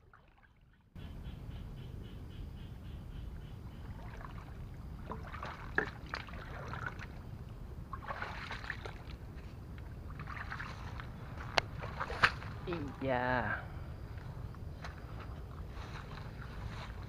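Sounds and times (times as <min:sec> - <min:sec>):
low steady rumble: 0:00.9 - 0:17.0
footsteps sloshing in muddy water: 0:03.8 - 0:13.0, 0:14.0 - 0:17.0
footsteps on wet leaves and grass: 0:14.8 - 0:17.0.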